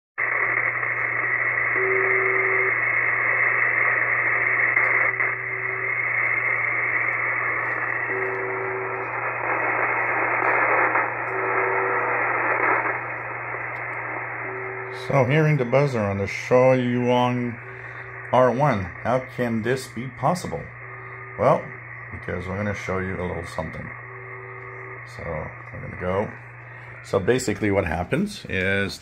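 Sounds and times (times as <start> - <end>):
low hum: 0.2 - 29.0
short radio buzzes: 0.2 - 29.0
shortwave static: 0.2 - 29.0.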